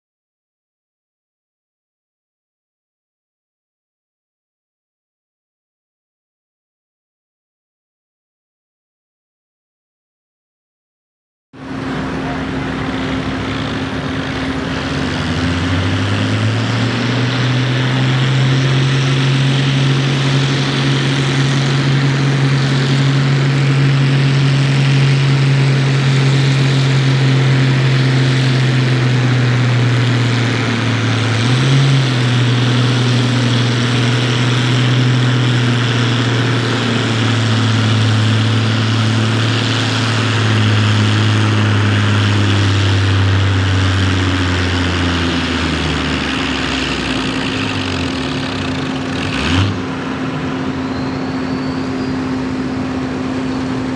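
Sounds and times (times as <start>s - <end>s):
tractor engine under load: 11.6s - 53.9s.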